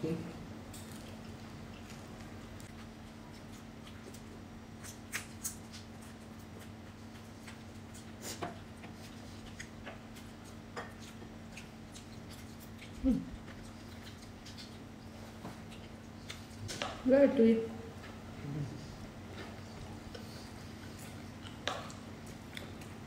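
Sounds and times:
steady low hum: 0:00.0 - 0:23.0
chewing smacks: 0:00.8 - 0:17.0, 0:19.3 - 0:23.0.

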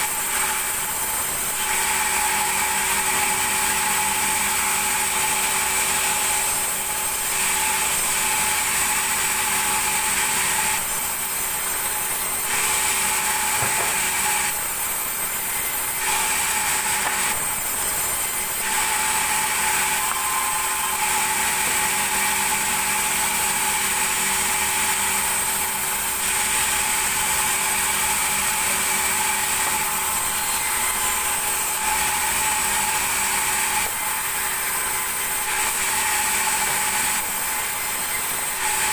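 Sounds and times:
band saw whining: 0:00.0 - 0:38.9
blade cutting through timber: 0:00.0 - 0:38.9.

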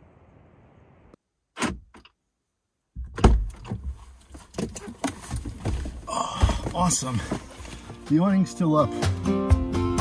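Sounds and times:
car door thumps and rattles: 0:03.0 - 0:08.0.

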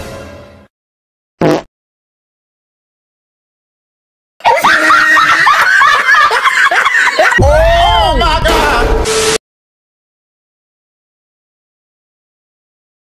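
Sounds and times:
many high voices screaming: 0:04.4 - 0:06.0.

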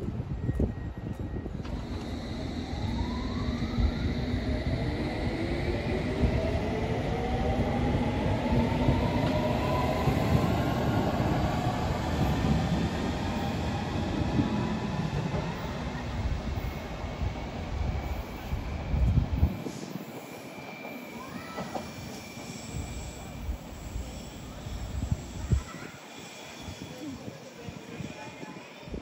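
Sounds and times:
electric train motor whine: 0:01.2 - 0:07.5.

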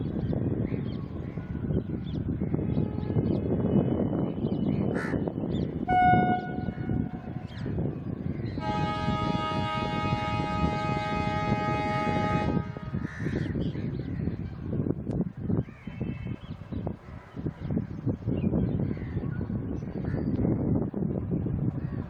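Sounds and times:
locomotive horn blasts: 0:05.9 - 0:07.4, 0:08.6 - 0:13.1
low rumble: 0:05.9 - 0:13.5.

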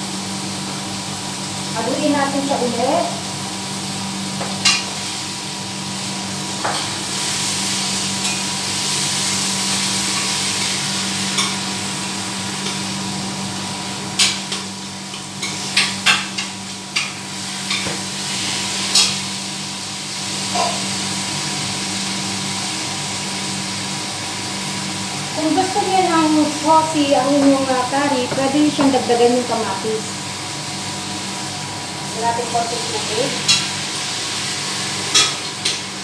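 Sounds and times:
fan hum: 0:00.0 - 0:36.0.

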